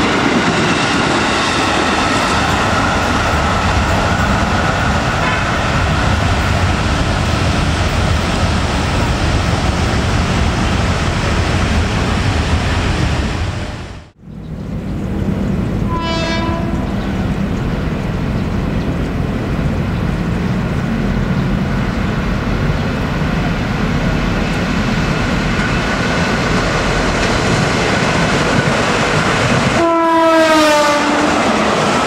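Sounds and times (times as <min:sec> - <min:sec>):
train rumbling on rails: 0:00.0 - 0:32.0
train horn blast: 0:05.2 - 0:05.6, 0:15.8 - 0:17.2, 0:29.8 - 0:31.5.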